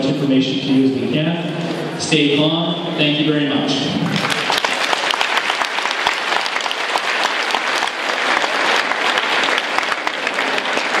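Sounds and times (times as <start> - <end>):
audience applauding: 4.0 - 11.0.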